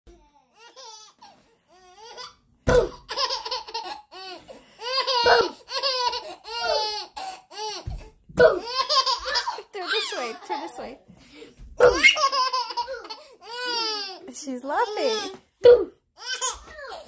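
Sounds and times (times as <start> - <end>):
baby laughing: 0.2 - 7.9, 8.5 - 10.8, 11.8 - 15.4, 16.2 - 17.0
baby cooing: 4.1 - 10.4, 11.8 - 14.2.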